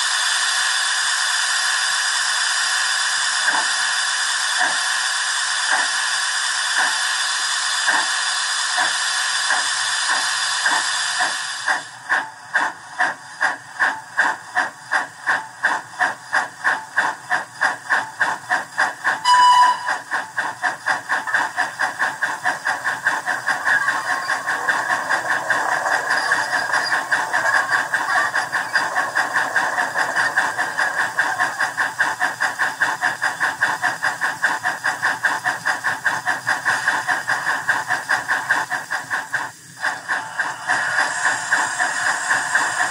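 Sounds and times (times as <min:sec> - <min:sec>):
steam hiss from small loudspeaker: 0:00.0 - 0:42.9
steam locomotive exhaust chuffs: 0:00.0 - 0:42.9
locomotive whistle: 0:19.2 - 0:20.1.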